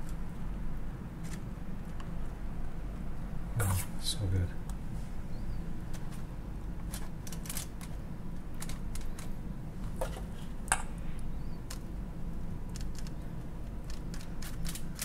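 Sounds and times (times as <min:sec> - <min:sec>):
steady low hum: 0:00.0 - 0:15.0
aluminium foil crinkling: 0:05.9 - 0:09.4, 0:11.6 - 0:15.0.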